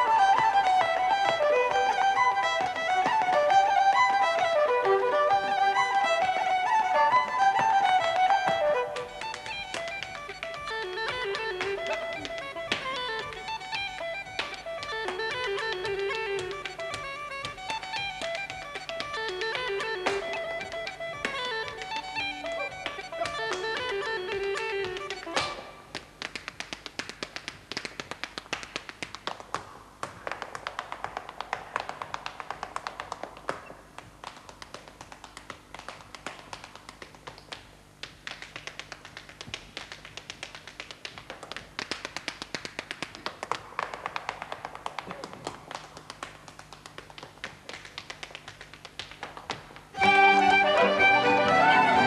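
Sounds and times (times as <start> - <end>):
instrumental music: 0.0 - 27.2, 46.4 - 52.0
hard shoe dance taps: 0.0 - 52.0.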